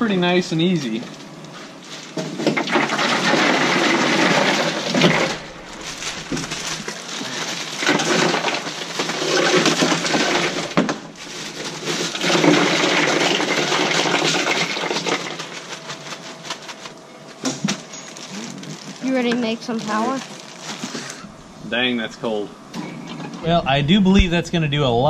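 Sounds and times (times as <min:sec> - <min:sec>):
plastic bags crinkling: 0:00.9 - 0:21.3
ice cubes rattling into cooler: 0:01.9 - 0:16.9.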